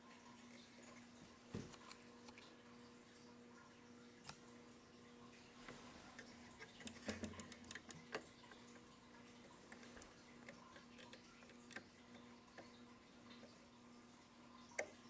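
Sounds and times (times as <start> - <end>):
small plastic clicks: 6.6 - 8.8.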